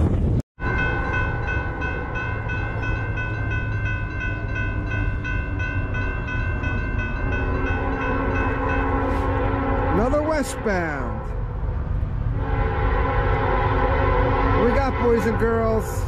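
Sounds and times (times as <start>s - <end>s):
railroad crossing bell ringing: 0.6s - 11.4s.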